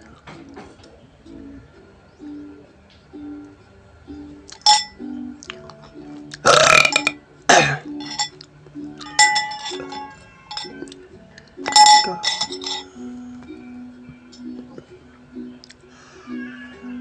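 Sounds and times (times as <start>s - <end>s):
background music: 0.0s - 17.0s
fork clinking on plate: 4.5s - 5.0s, 6.5s - 7.2s, 8.0s - 8.4s, 9.0s - 10.9s, 11.7s - 12.9s
person burping: 6.4s - 7.8s.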